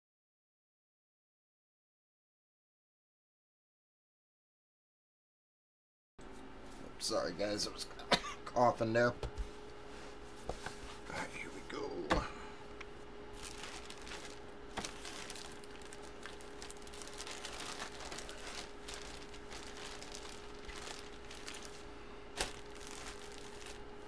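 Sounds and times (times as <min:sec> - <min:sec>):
faint steady hum: 0:06.2 - 0:24.0
plastic packaging crinkling: 0:13.3 - 0:24.0.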